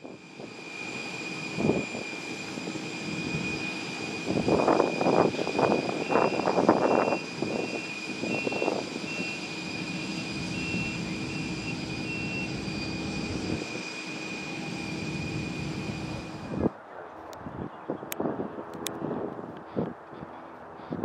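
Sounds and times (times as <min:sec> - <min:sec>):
auxiliary power unit whine: 0:00.4 - 0:16.7.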